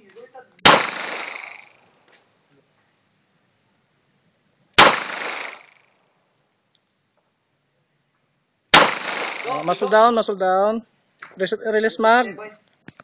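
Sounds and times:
pistol shots with echo: 0.6 - 1.7, 4.8 - 5.7, 8.8 - 9.6.

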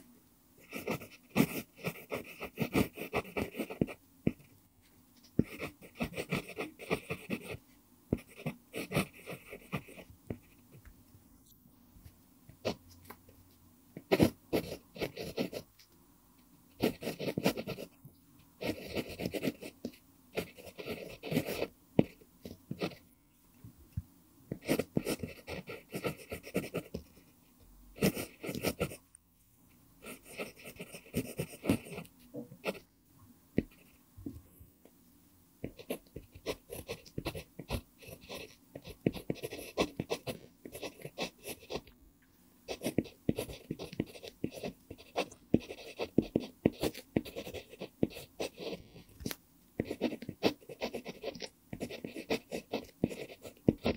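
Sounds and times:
pencil scratching on paper: 0.6 - 4.5, 5.2 - 10.7, 14.0 - 15.7, 16.8 - 18.0, 18.6 - 23.0, 24.5 - 27.4, 28.0 - 29.0, 30.0 - 32.9, 35.6 - 41.9, 42.7 - 49.2, 49.8 - 53.9.

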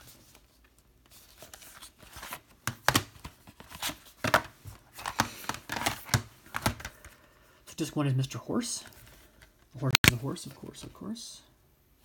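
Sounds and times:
plastic cases and cardboard rustling: 0.0 - 7.2.

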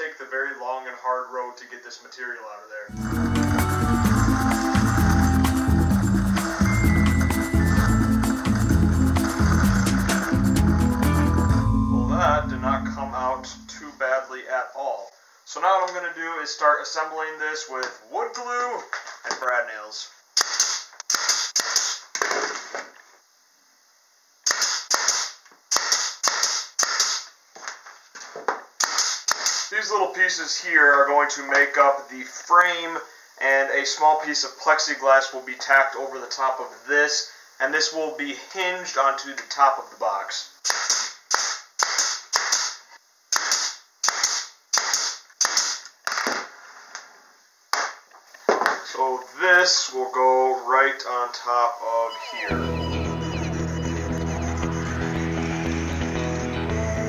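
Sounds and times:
nail gun firing into plywood: 20.4 - 22.6, 24.4 - 27.3, 28.8 - 29.7, 40.6 - 46.5.

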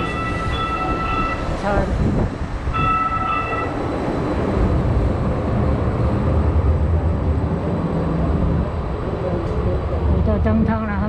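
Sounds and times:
brief high steady tone: 0.0 - 1.6, 2.7 - 3.8
train low rumble: 0.0 - 11.0.

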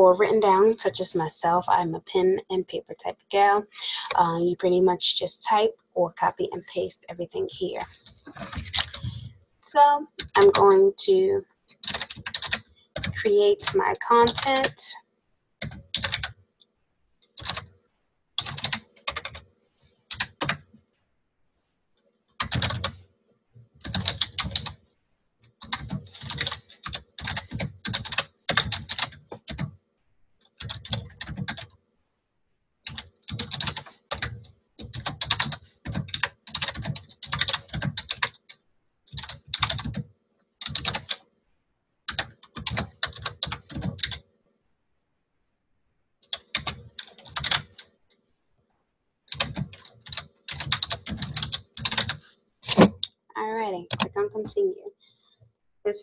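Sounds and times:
typing on computer keyboard: 8.0 - 9.3, 11.7 - 14.8, 15.6 - 16.4, 17.2 - 17.7, 18.4 - 19.5, 20.1 - 20.7, 22.3 - 23.0, 23.8 - 24.8, 25.4 - 29.8, 30.4 - 31.8, 32.8 - 41.3, 42.1 - 44.2, 46.2 - 47.9, 49.3 - 53.2.

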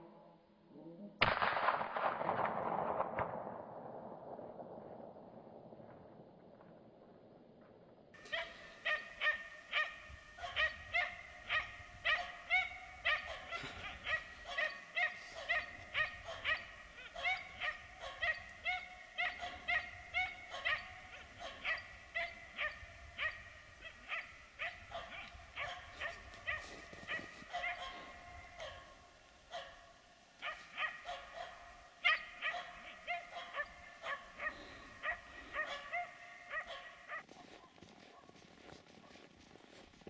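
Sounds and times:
dog barking sharply: 8.3 - 37.2.

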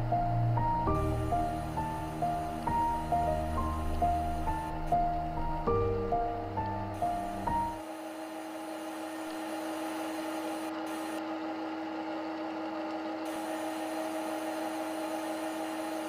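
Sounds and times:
steady machine hum: 0.0 - 16.0
even hiss: 0.8 - 5.1.

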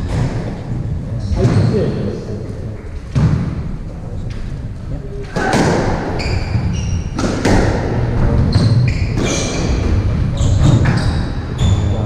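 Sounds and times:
squash ball smacking walls: 5.3 - 10.0
shoes squeaking on wooden floor: 6.1 - 7.2, 10.4 - 12.0.

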